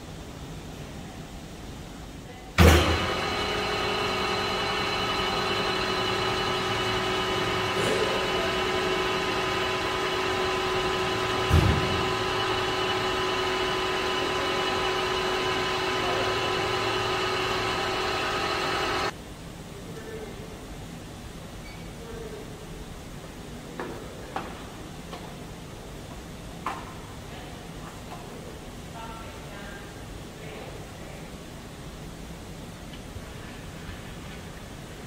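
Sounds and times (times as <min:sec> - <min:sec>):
lathe knock: 0:02.6 - 0:19.1
metal lathe whining: 0:02.6 - 0:19.1.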